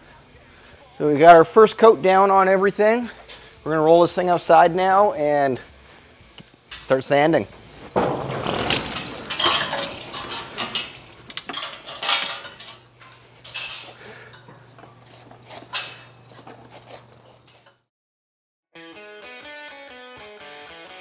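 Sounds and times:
garage door clattering: 6.7s - 17.8s.

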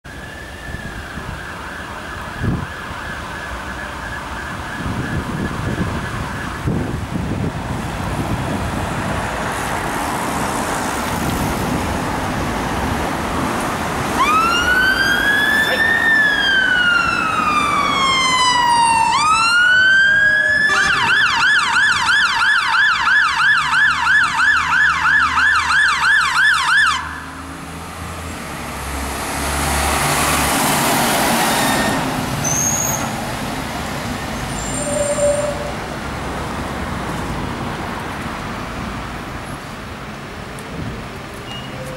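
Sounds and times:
road traffic noise: 0.0s - 41.9s
fire engine siren: 0.1s - 7.5s, 14.0s - 33.0s.

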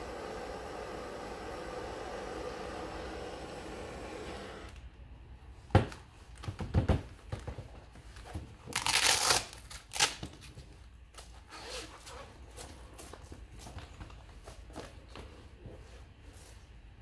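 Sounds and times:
blowtorch hissing: 0.0s - 4.8s
closure ripping open: 8.7s - 10.3s.

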